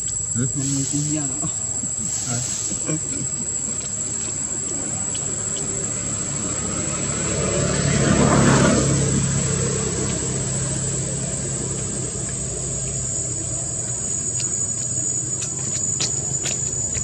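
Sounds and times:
high-pitched insect drone: 0:00.0 - 0:17.0
motor vehicle passing: 0:03.7 - 0:17.0.

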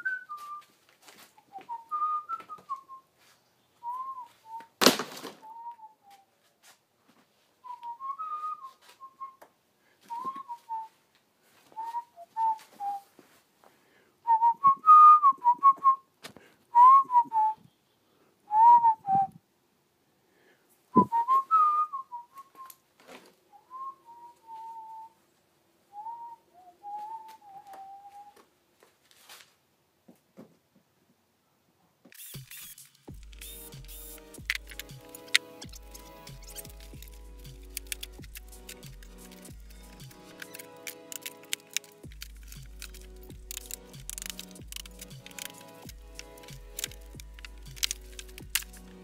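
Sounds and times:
man whistling a tune: 0:00.0 - 0:00.7, 0:01.5 - 0:03.1, 0:03.8 - 0:04.8, 0:05.4 - 0:06.3, 0:07.6 - 0:09.4, 0:10.1 - 0:11.0, 0:11.8 - 0:13.1, 0:14.3 - 0:16.1, 0:16.8 - 0:17.6, 0:18.5 - 0:19.4, 0:21.0 - 0:22.8, 0:23.5 - 0:25.2, 0:26.0 - 0:28.4
clicks: 0:32.1 - 0:49.0.

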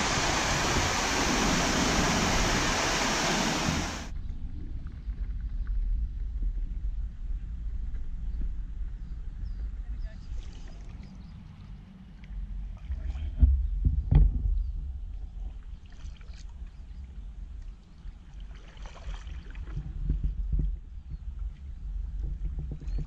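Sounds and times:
paddle strokes splashing in water: 0:00.0 - 0:04.1, 0:18.4 - 0:19.9
steady low rumble: 0:00.0 - 0:09.9.

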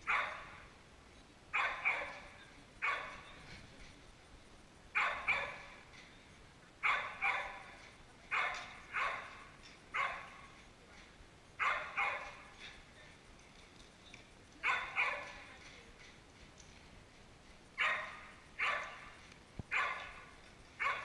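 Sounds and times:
dog barking: 0:00.0 - 0:00.6, 0:01.5 - 0:03.3, 0:05.0 - 0:05.8, 0:06.8 - 0:07.7, 0:08.3 - 0:10.4, 0:11.6 - 0:12.5, 0:14.6 - 0:15.4, 0:17.8 - 0:19.1, 0:19.7 - 0:21.0.

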